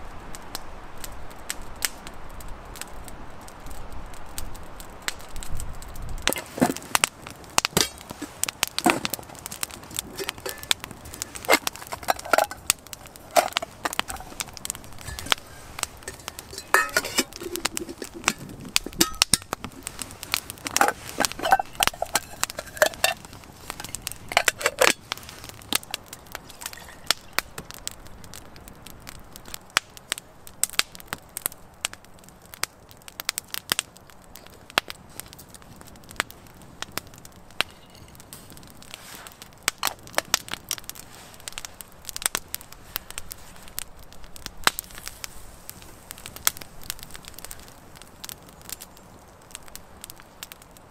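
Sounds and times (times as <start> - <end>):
campfire crackling and popping: 0.0 - 50.9
metal cookware clinking: 10.1 - 10.7, 11.4 - 12.7, 15.0 - 19.5, 20.7 - 23.2, 23.8 - 25.0.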